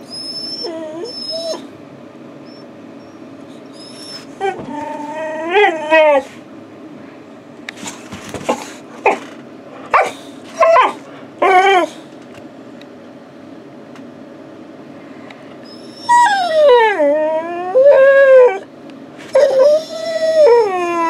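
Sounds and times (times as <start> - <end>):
dog whining yips: 0.0 - 1.7, 2.4 - 6.3, 9.9 - 12.0, 15.6 - 18.6, 19.3 - 21.0.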